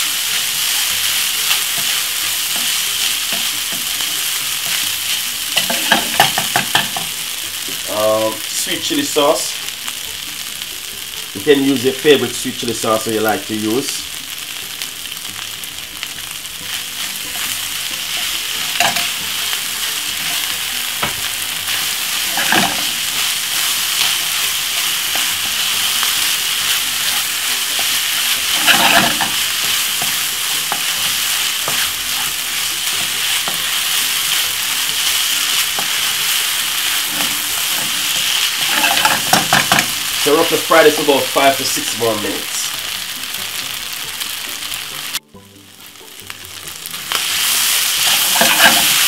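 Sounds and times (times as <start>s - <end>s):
rice sizzling in frying pan: 0.0s - 49.0s
wooden spatula scraping pan: 27.1s - 32.3s, 37.1s - 39.8s, 48.0s - 49.0s.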